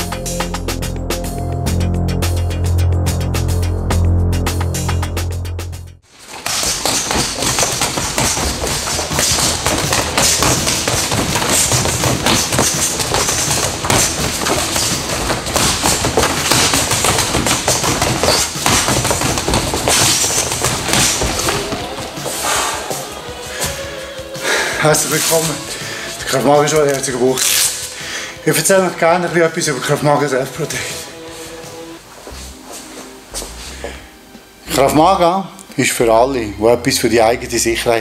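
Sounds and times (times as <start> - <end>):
punches thudding on rubber dummy: 6.4 - 22.4.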